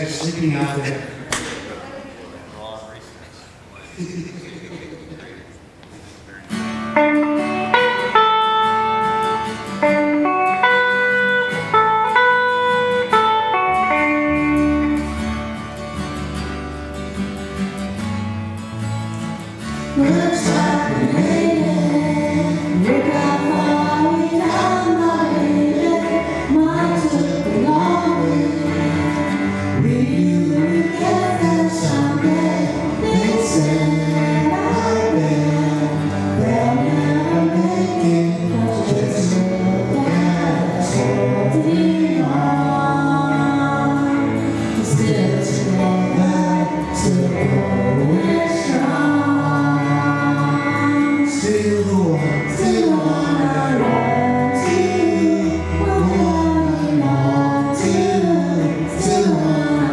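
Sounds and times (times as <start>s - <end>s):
electric guitar: 4.8s - 59.9s
strummed acoustic guitars: 5.6s - 59.9s
electric bass: 6.6s - 59.9s
woman singing: 20.0s - 59.9s.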